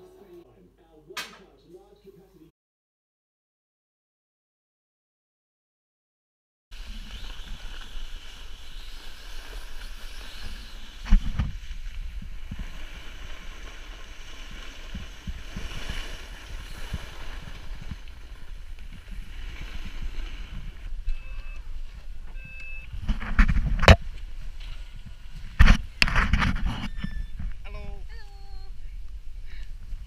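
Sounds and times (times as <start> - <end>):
sharp knock: 1.2 - 1.5
snowboard sliding on snow: 6.8 - 26.7.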